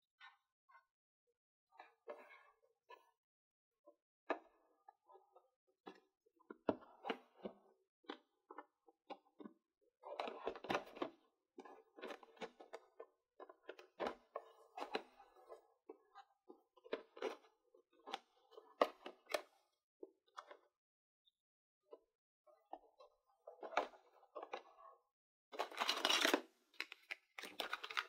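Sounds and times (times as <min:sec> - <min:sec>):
packaging rustling: 0:25.6 - 0:28.0.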